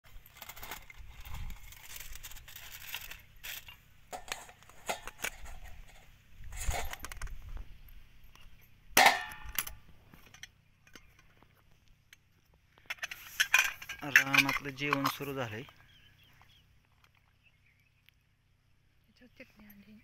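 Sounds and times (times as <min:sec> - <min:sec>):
foil crinkling: 0:00.2 - 0:05.4
metal lids clicking and knocking: 0:03.5 - 0:06.0, 0:09.0 - 0:11.4, 0:12.8 - 0:15.5
ringing metal clang: 0:09.0 - 0:09.8.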